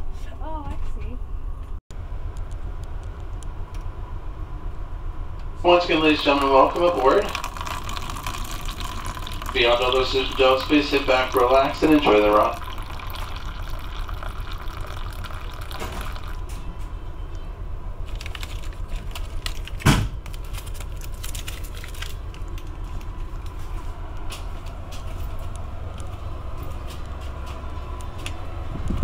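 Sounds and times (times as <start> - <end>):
train car rumble: 0.0 - 7.1, 14.7 - 29.0
coffee trickling into paper cup: 5.8 - 16.6, 18.1 - 22.7
packets rustling and clicking: 18.0 - 23.6
loud thump: 19.8 - 20.2.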